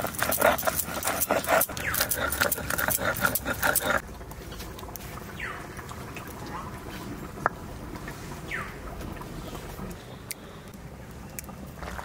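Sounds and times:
stone pestle scraping grinding stone: 0.0 - 4.0.

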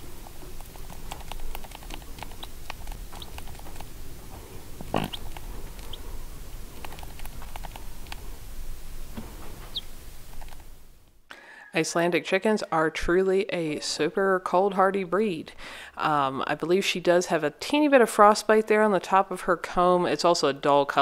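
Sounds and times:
chick peeping: 2.2 - 3.8, 4.5 - 6.6, 9.6 - 10.0
hen clucking: 2.3 - 6.7, 9.6 - 10.0.

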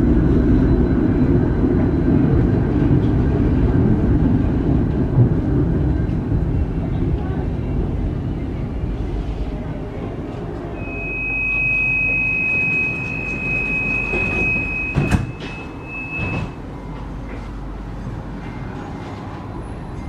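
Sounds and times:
low hum of tram: 0.0 - 20.0
high electronic door warning tone: 10.8 - 16.6.

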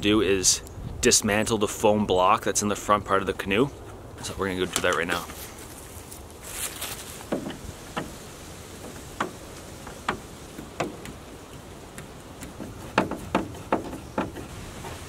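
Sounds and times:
hard plastic knocks and clicks: 7.3 - 8.2, 8.8 - 14.5.

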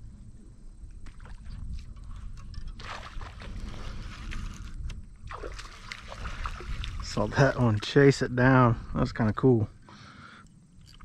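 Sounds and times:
wind on microphone: 0.0 - 7.8
water splashing: 2.7 - 8.2.

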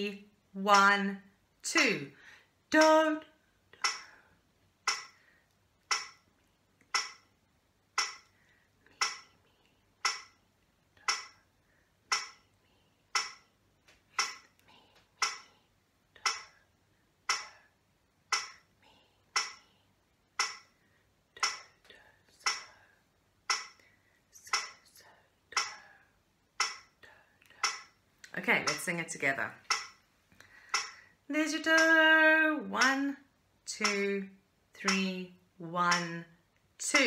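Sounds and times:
metronome clicking: 3.8 - 4.1, 4.9 - 5.2, 5.8 - 6.2, 6.9 - 7.3, 8.0 - 8.3, 9.0 - 9.3, 10.0 - 10.4, 11.0 - 11.4, 12.1 - 12.4, 13.1 - 13.4, 14.2 - 14.5, 15.2 - 15.4, 16.2 - 16.5, 18.3 - 18.6, 19.4 - 19.6, 20.4 - 20.7, 21.4 - 21.7, 22.4 - 22.7, 23.5 - 23.8, 24.5 - 24.8, 25.6 - 25.8, 26.6 - 26.9, 27.6 - 27.9, 28.6 - 28.9, 29.7 - 30.0, 30.7 - 31.0, 31.6 - 32.0, 32.8 - 33.0, 33.7 - 34.1, 34.8 - 35.1, 35.8 - 36.2.

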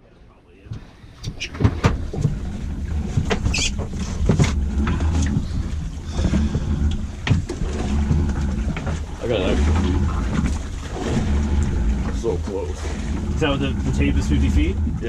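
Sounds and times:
boat engine rumble: 0.0 - 15.0
knocks and rattles: 0.7 - 15.0
rope squeak: 1.3 - 1.6, 3.4 - 3.9.

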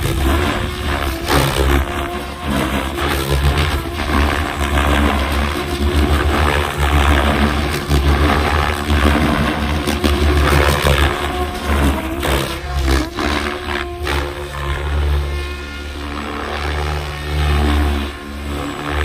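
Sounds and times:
electric motor whining: 0.0 - 19.0
helicopter rotor blades whooshing: 0.0 - 19.0.

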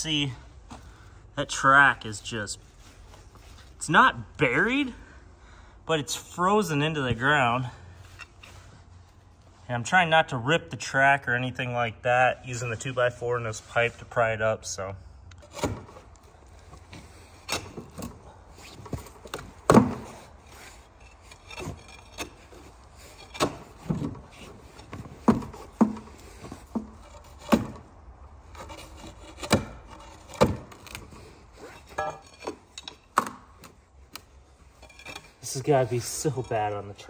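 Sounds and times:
wood and metal knocking and scraping: 15.4 - 27.9, 28.5 - 33.8, 34.6 - 36.8.

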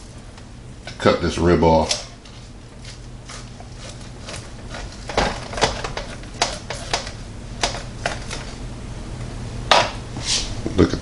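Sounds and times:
knife cutting ribs: 1.9 - 8.5.

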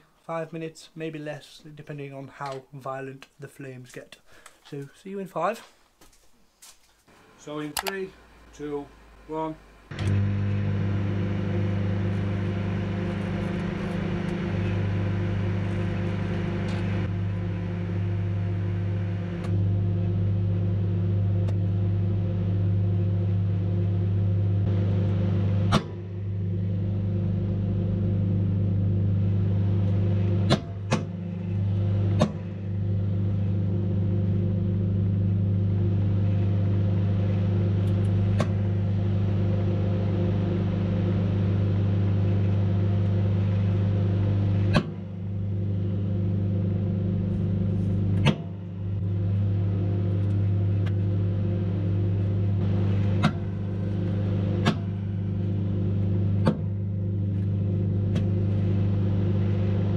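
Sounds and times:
microwave oven humming: 7.1 - 59.9.

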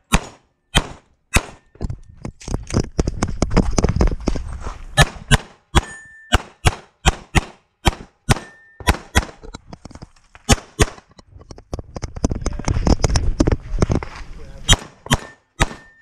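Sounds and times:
pistol shots: 0.0 - 1.6, 5.0 - 9.4, 10.5 - 11.0, 14.7 - 16.0.

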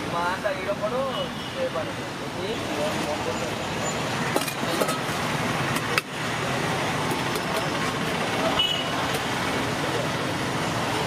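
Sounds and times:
roadside traffic noise: 0.0 - 11.0.

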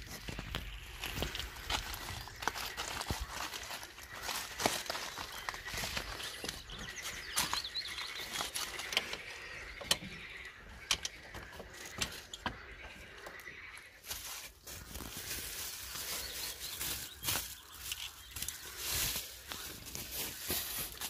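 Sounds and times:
bubble wrap rustling: 0.0 - 8.8, 14.0 - 21.0.

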